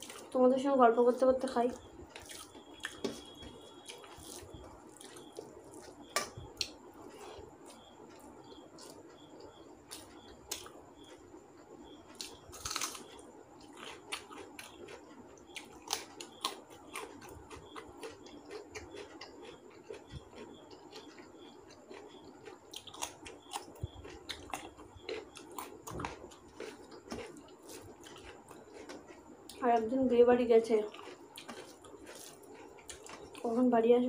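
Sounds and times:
fingers mixing rice on plate: 2.1s - 9.1s, 30.9s - 33.4s
wet chewing and lip smacks: 11.8s - 29.6s, 30.9s - 33.5s.

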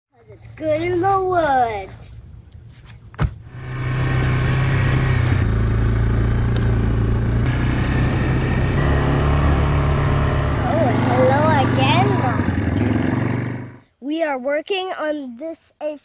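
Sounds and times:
atv engine running: 3.5s - 13.8s.

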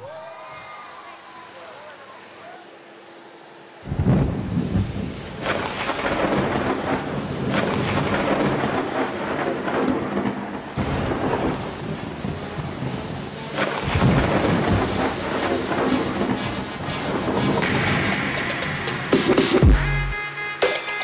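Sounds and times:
heavy rain: 0.0s - 20.2s
rolling thunder: 3.8s - 19.4s.

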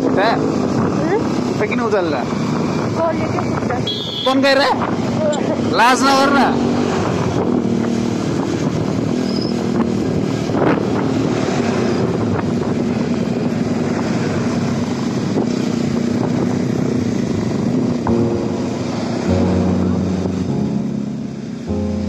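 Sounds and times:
wind and road noise: 0.0s - 22.0s
motorcycle engine running: 12.2s - 22.0s.

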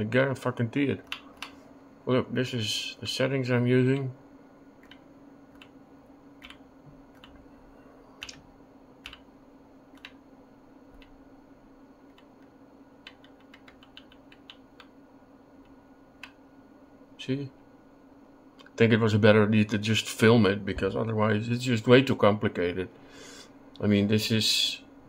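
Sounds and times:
faint low hum: 0.0s - 25.0s
computer keyboard key presses: 6.4s - 7.4s, 8.2s - 8.4s, 9.9s - 10.2s, 13.0s - 14.9s.

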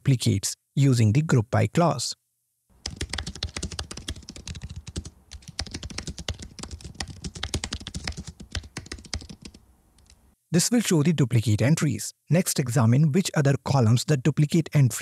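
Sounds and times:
fast typing on keyboard: 2.8s - 9.6s.

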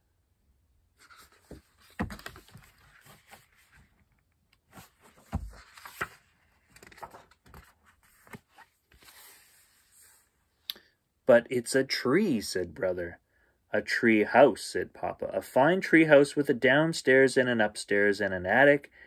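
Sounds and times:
book pages rustling: 1.0s - 10.2s.

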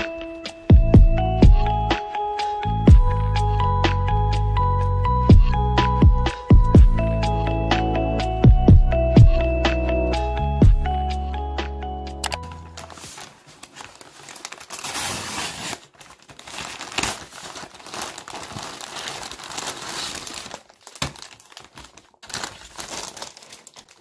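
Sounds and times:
cardboard and packing crinkling: 12.4s - 24.0s.

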